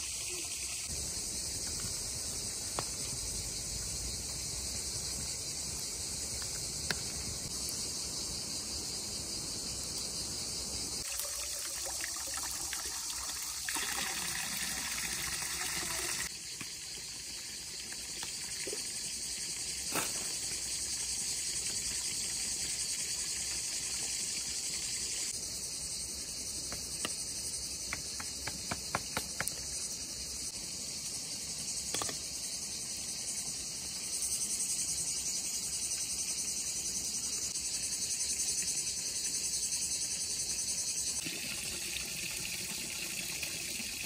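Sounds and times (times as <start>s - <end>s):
high-pitched insect chorus: 0.0s - 44.0s
running water: 11.0s - 25.2s, 41.2s - 44.0s.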